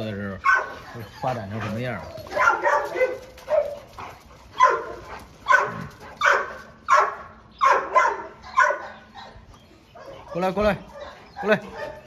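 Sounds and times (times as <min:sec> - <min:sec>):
dog barking: 0:00.4 - 0:01.0, 0:02.3 - 0:03.8, 0:04.6 - 0:09.4, 0:10.0 - 0:12.0.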